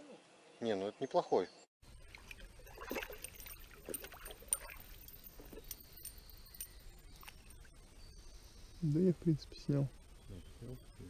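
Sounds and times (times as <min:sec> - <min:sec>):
water splashing: 0:02.0 - 0:05.8.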